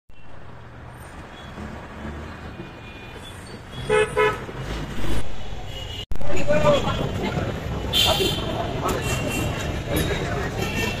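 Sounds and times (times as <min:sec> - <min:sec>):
road traffic noise: 0:00.1 - 0:11.0
vehicle horn beeps: 0:10.6 - 0:11.0.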